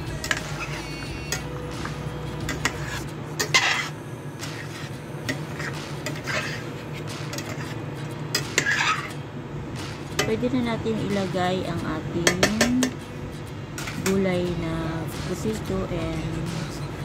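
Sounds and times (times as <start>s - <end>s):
low hum: 0.0s - 17.0s
metal turner scraping a pot: 0.1s - 1.5s, 2.4s - 9.2s.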